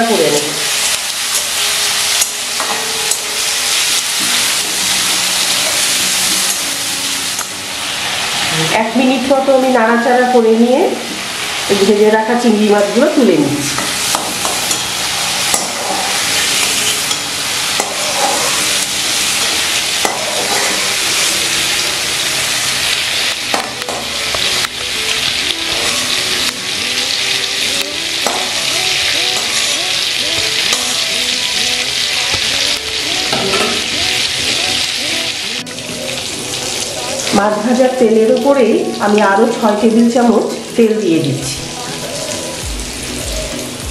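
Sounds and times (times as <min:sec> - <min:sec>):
hot oil sizzling: 0:00.0 - 0:43.9
metal spatula scraping a pan: 0:13.7 - 0:21.9.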